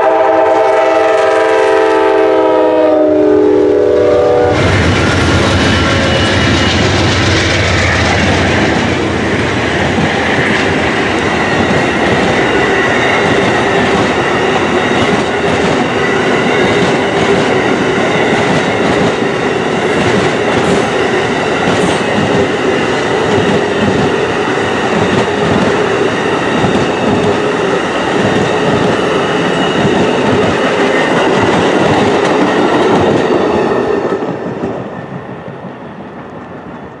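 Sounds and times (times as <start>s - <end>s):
train wheels on track: 0.0s - 37.0s.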